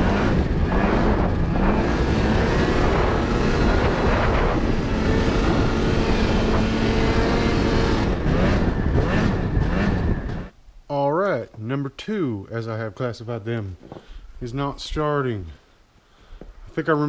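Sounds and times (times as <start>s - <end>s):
snowmobile engine revving: 0.0s - 10.5s.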